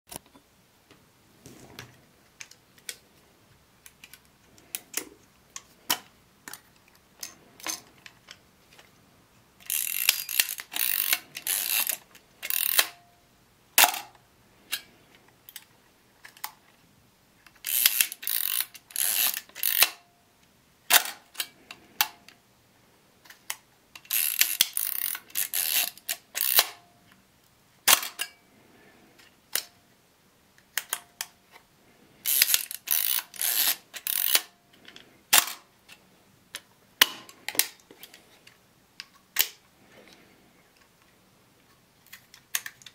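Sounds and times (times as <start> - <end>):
camera mechanism clicks: 9.6 - 13.0, 23.4 - 26.8
camera ratcheting: 9.6 - 13.0, 17.6 - 20.0, 24.0 - 26.8, 32.3 - 34.5.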